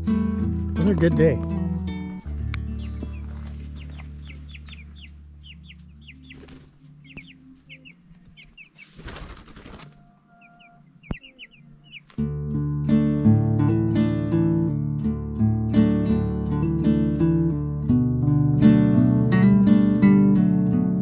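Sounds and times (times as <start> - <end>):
background guitar music: 0.0 - 9.2, 9.8 - 21.0
chicks peeping: 2.5 - 12.2.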